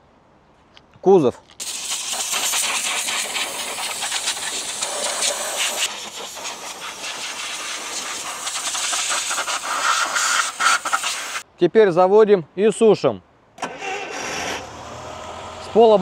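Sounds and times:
pressure washer spraying water: 1.6 - 11.4.

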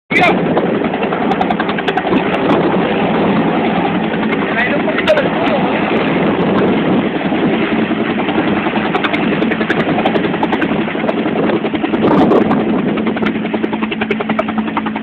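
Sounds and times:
helicopter rotor beating: 0.1 - 15.0
turbine engine steady tone: 0.1 - 15.0.

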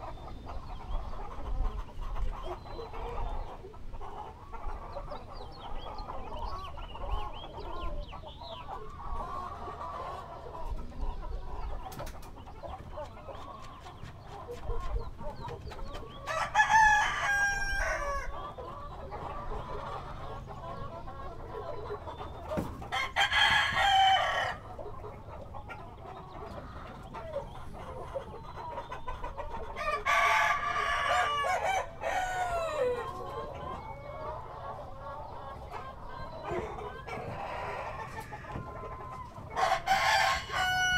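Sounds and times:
chickens clucking: 0.0 - 40.9
rooster crowing: 16.3 - 18.3, 22.9 - 24.6, 29.8 - 33.1, 39.6 - 40.9.

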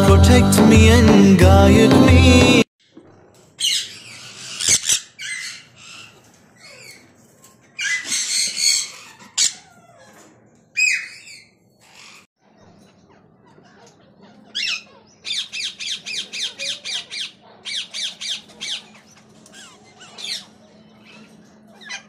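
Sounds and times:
parakeet squawking harshly: 3.6 - 7.0, 7.8 - 9.8.

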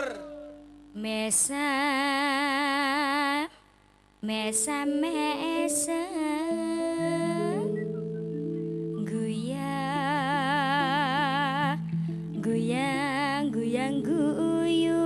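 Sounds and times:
woman singing into a microphone: 0.9 - 3.6, 4.2 - 8.0, 8.9 - 15.0
steady backing notes: 5.6 - 15.0.

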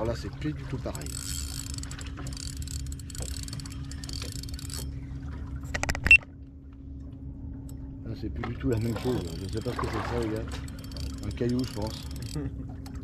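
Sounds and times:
steady low hum: 0.0 - 13.0
fishing reel gears whirring: 0.8 - 6.2, 8.6 - 13.0.

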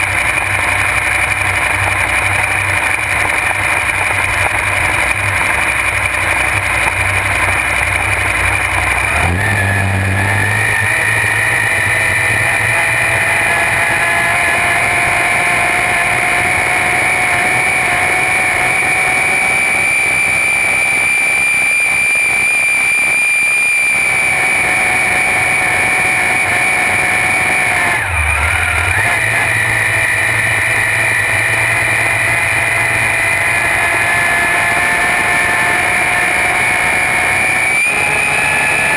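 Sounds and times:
boat engine high whine: 0.0 - 38.9.

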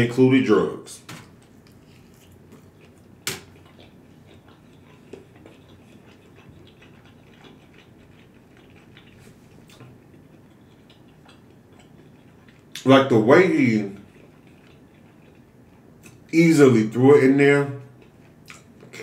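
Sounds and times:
wet mouth clicks and smacks: 18.0 - 19.0.

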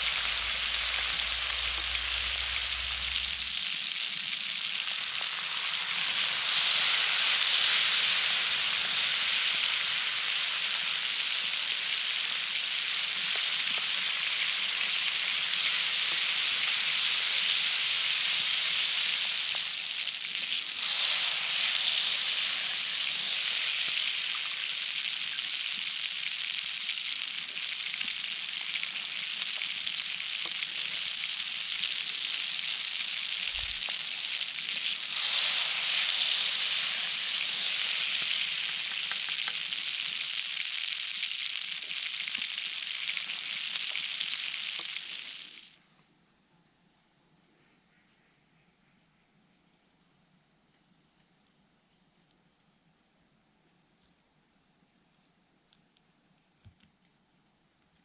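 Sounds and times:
onions sizzling in a pan: 0.0 - 45.8.

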